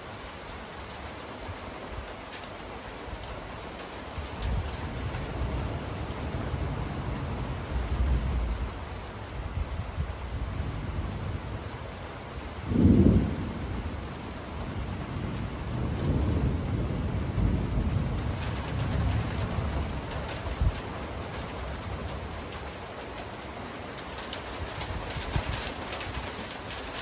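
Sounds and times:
heavy rain: 0.0 - 27.0
rain drop ticks: 2.0 - 6.4, 14.3 - 27.0
low rumbling thunder: 4.3 - 22.7, 24.5 - 27.0
thunderclap: 12.6 - 14.1, 14.7 - 22.7, 24.2 - 27.0.

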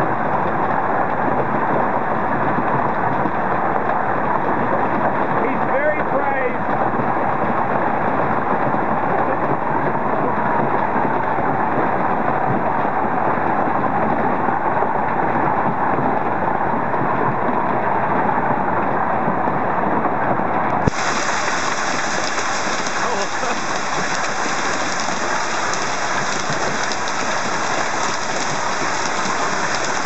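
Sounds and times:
hailstones pelting cars and roof: 20.9 - 30.0.

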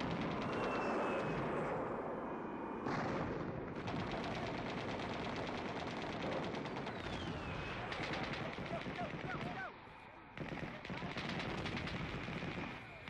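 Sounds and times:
machine-gun fire: 0.0 - 1.1, 2.9 - 9.7, 10.4 - 12.8.

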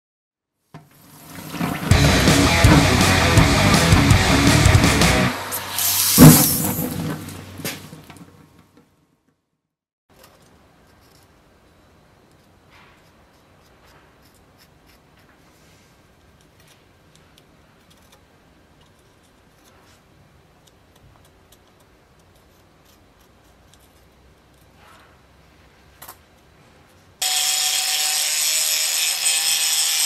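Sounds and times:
small handling clicks and scrapes: 12.3 - 25.2.

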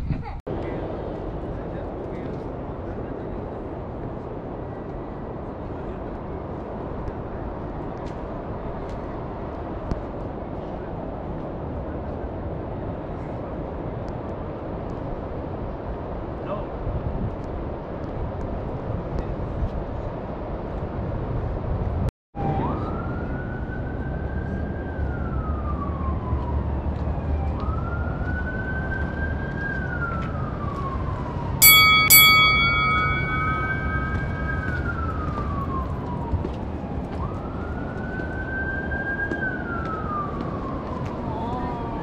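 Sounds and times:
street noise: 0.0 - 42.0
emergency siren wailing: 22.4 - 42.0
sharp ringing strikes: 31.6 - 35.0.

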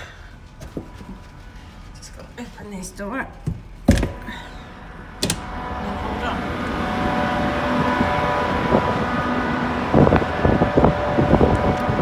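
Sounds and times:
machinery hum with tones: 0.0 - 12.0
wind buffeting microphone: 5.4 - 12.0.

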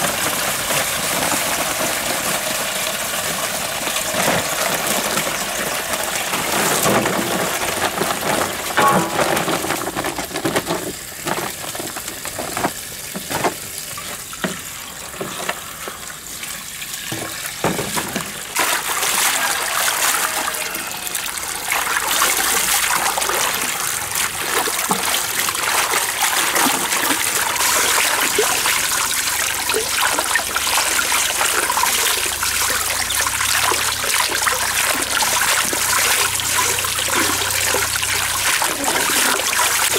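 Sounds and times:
water running from a hose: 0.0 - 39.9
knocks: 8.8 - 11.4
hands splashing washing leaves: 17.0 - 20.6, 21.6 - 39.9.

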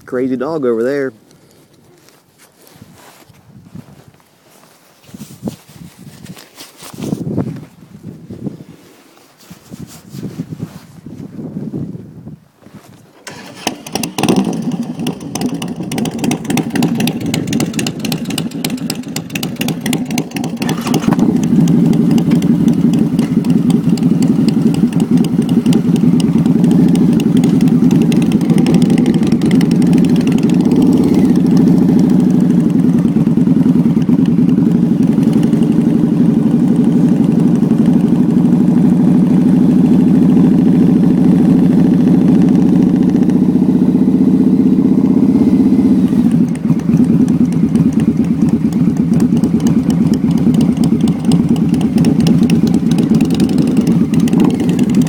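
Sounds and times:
motorcycle engine idling: 13.3 - 55.0.

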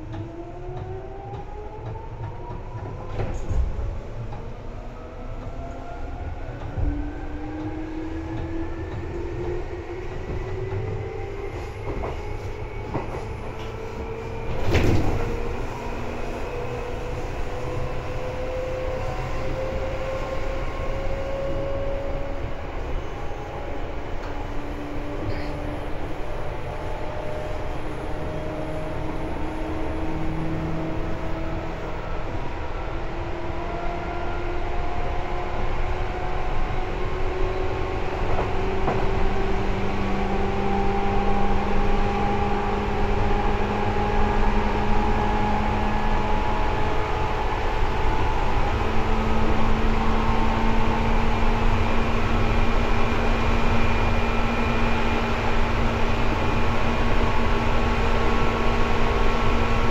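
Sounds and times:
wheels rumbling on rail: 0.0 - 59.9.

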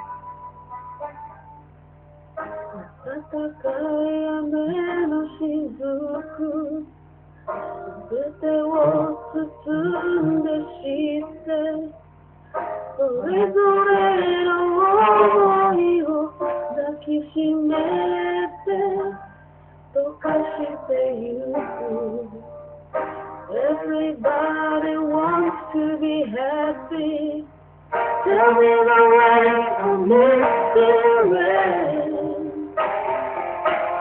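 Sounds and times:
backing track music: 0.0 - 4.3, 27.6 - 34.0
woman singing: 2.8 - 6.9, 8.0 - 12.0, 13.0 - 19.3, 20.0 - 22.5, 23.5 - 27.5, 28.2 - 32.8.

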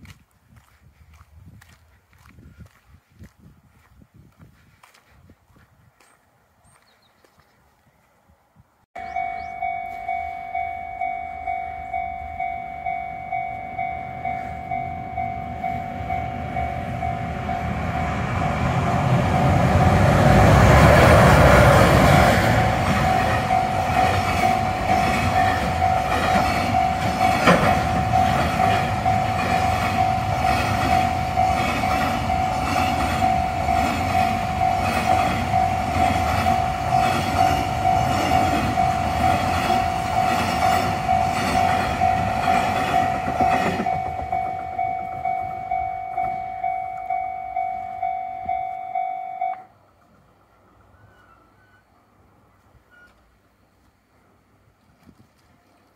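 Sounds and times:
level-crossing bell ringing: 9.0 - 19.8, 22.6 - 49.7
freight train wheels clacking on rails: 14.2 - 46.4.

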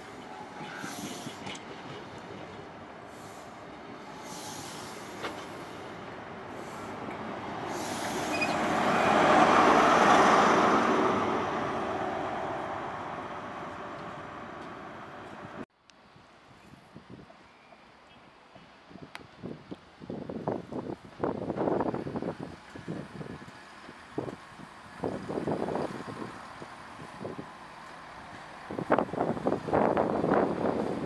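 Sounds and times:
train passing: 0.0 - 15.6.

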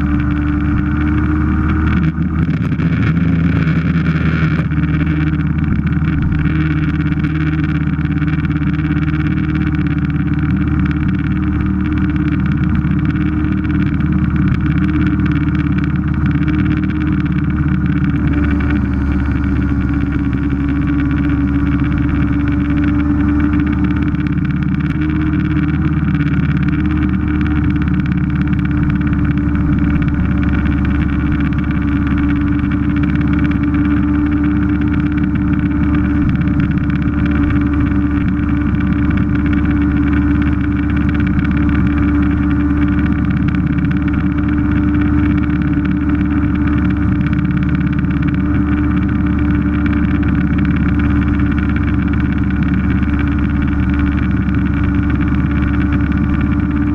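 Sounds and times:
scooter two-stroke engine running: 0.0 - 56.9.

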